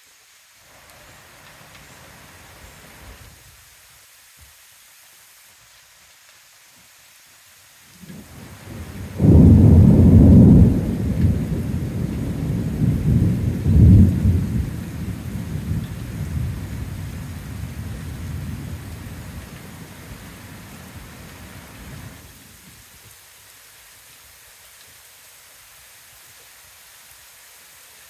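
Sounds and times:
thunder rumbling: 8.1s - 22.2s.

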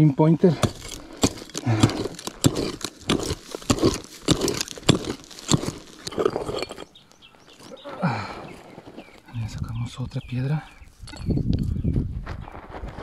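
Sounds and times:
gravel and soil crunching: 0.0s - 13.0s
pick chopping into stony earth: 0.4s - 6.9s.

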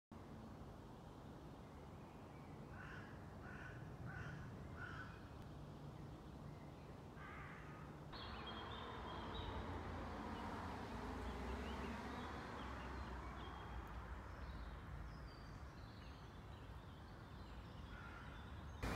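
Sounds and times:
crow cawing: 2.7s - 5.2s, 7.2s - 7.9s, 17.9s - 18.4s
small birds chirping: 8.2s - 10.5s.

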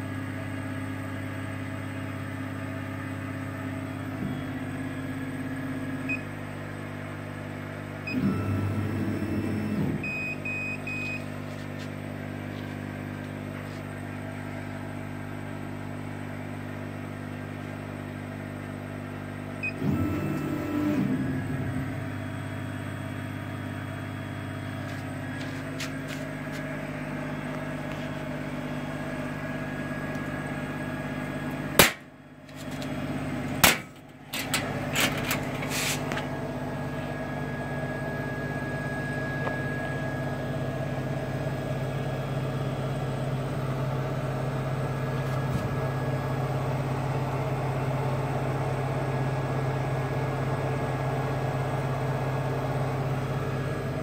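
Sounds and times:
laser cutter humming: 17.0s - 43.3s.

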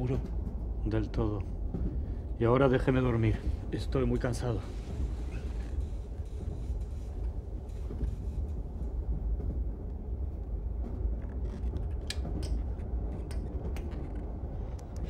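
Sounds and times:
train rumbling: 0.0s - 15.0s.

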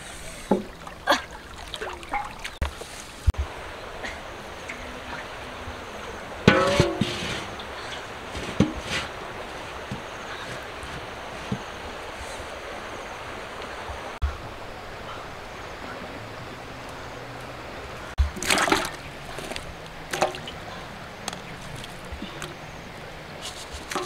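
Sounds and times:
steady outdoor hiss: 0.0s - 24.0s
smaller splashes: 0.4s - 3.3s, 18.1s - 22.4s.

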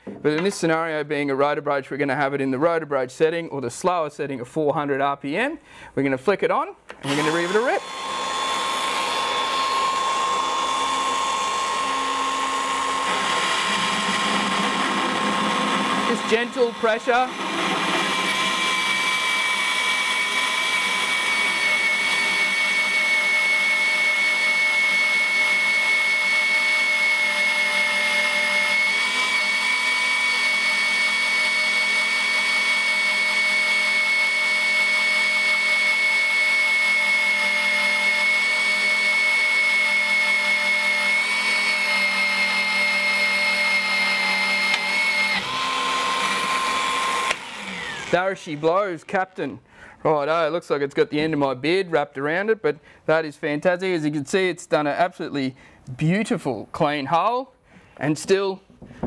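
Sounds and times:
magnetic drill motor whine: 7.0s - 48.6s.

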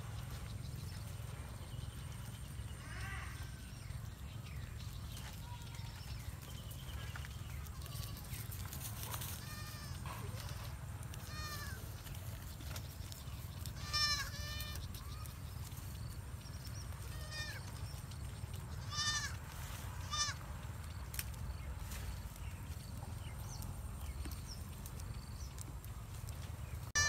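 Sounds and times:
kid goat bleating: 7.8s - 8.4s, 9.3s - 12.0s, 13.7s - 15.4s, 17.0s - 17.8s, 18.7s - 19.4s, 20.0s - 20.4s.

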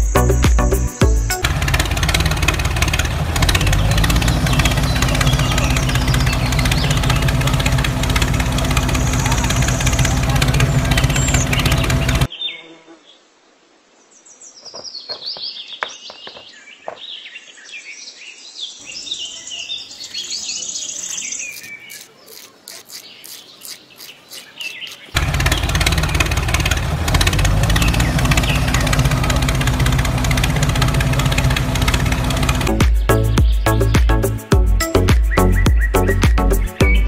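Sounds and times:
birds chirping: 0.0s - 13.2s, 14.1s - 37.0s.

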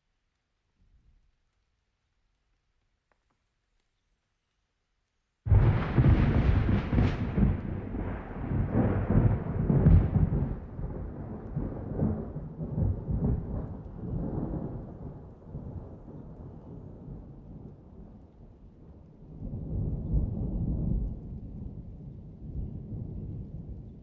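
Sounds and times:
thunder rolling: 5.5s - 17.7s.

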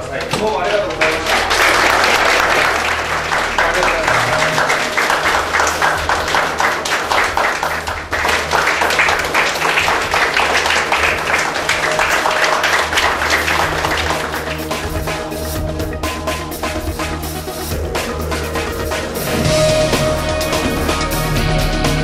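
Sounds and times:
audience applauding: 0.4s - 17.2s.

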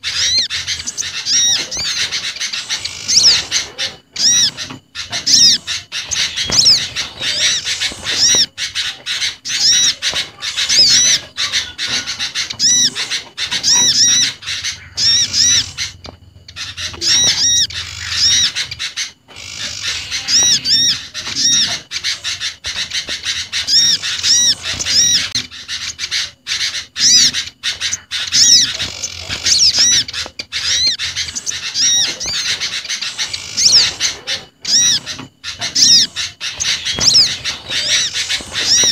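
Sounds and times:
small birds chirping: 0.0s - 38.9s.

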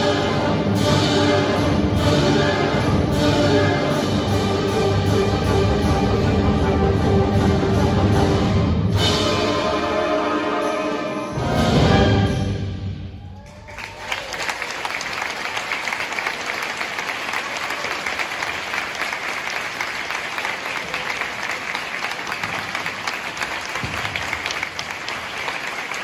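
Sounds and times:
audience applause: 13.2s - 26.0s.

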